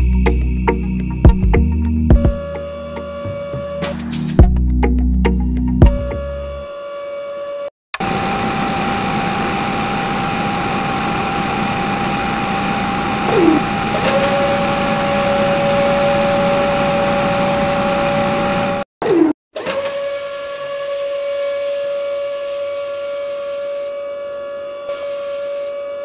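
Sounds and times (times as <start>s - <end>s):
small electric motors whirring: 6.2s - 18.8s, 19.6s - 26.0s
falling whine: 8.0s - 18.8s.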